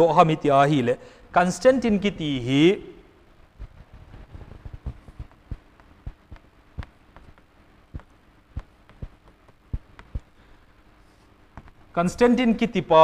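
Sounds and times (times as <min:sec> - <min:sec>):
faint steady hum: 0:00.0 - 0:13.0
chalk tapping on blackboard: 0:05.1 - 0:10.3.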